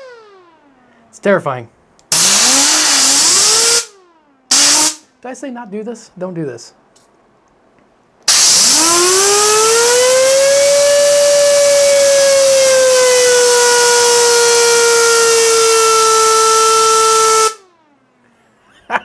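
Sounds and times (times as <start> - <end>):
siren wailing: 0.0 - 1.0, 8.4 - 18.0
air jet hissing: 2.1 - 3.9, 4.5 - 5.0, 8.3 - 9.2.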